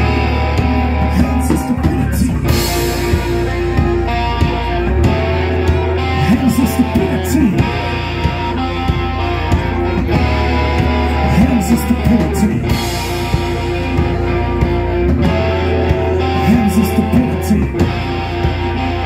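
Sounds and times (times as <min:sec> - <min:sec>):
drums: 0:00.0 - 0:19.0
electric guitars: 0:00.0 - 0:19.0.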